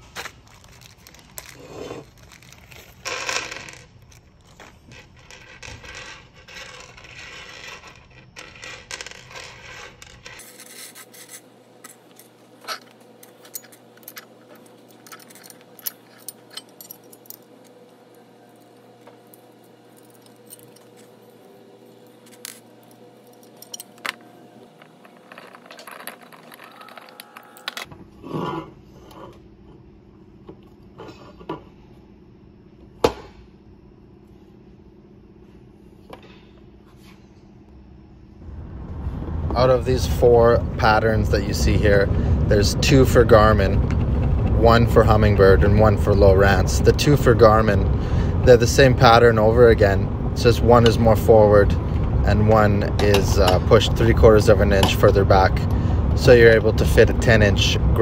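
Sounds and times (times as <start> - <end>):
metal screws and nuts clinking: 12.1 - 17.8, 18.6 - 21.2, 22.1 - 24.2, 24.8 - 27.7.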